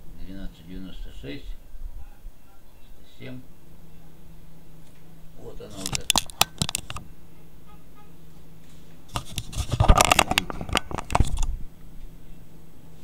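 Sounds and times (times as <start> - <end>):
faint low hum: 0.0 - 13.0
camera handling scrapes and rattles: 5.7 - 7.0, 9.1 - 11.6.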